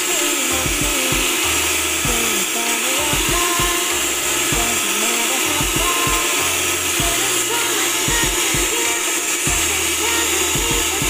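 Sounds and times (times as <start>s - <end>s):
background music with beats: 0.0s - 11.0s
electric hand mixer whisking: 0.0s - 11.0s.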